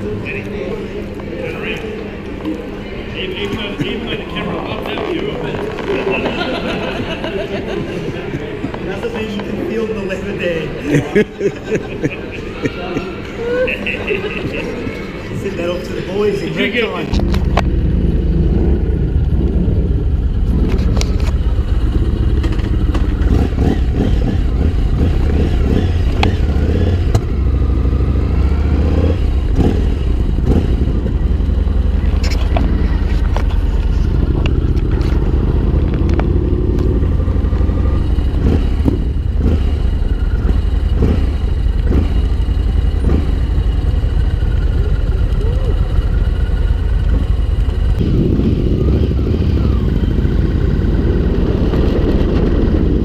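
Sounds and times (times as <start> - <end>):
motorcycle engine rumbling: 0.0 - 53.0.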